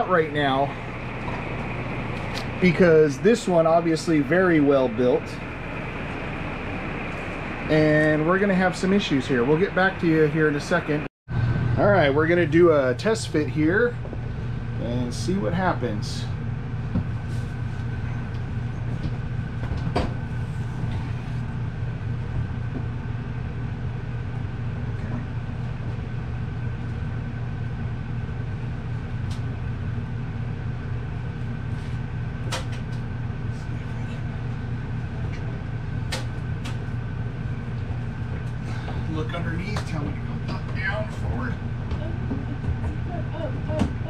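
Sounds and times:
low machine hum: 0.0s - 44.0s
knocks and clunks of microwave: 19.0s - 20.3s, 39.7s - 44.0s.

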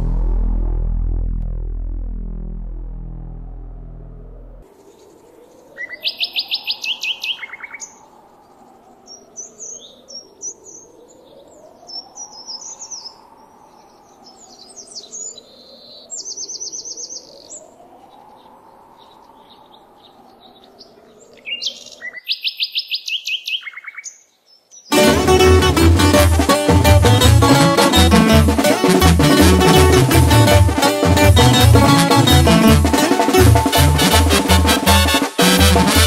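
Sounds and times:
faint swelling tone: 0.0s - 4.6s
birds chirping and calling: 13.8s - 24.9s.

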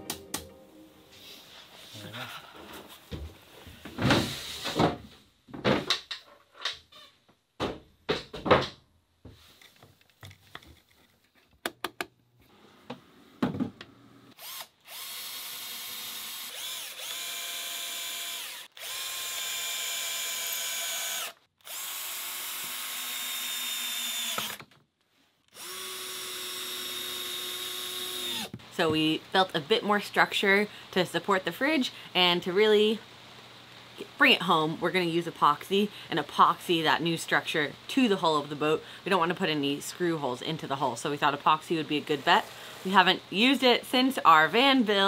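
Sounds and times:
cordless drill driving screws: 14.3s - 24.7s, 25.5s - 28.6s.

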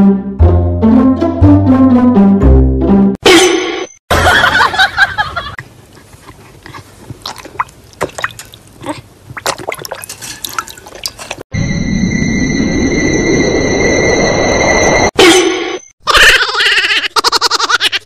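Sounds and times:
dog lapping water: 6.0s - 11.4s.

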